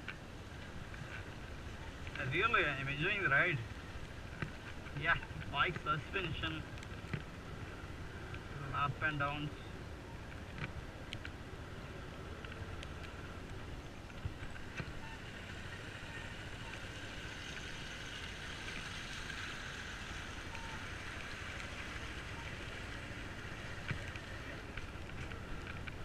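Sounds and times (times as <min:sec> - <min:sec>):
motorcycle engine running: 0:11.5 - 0:26.0.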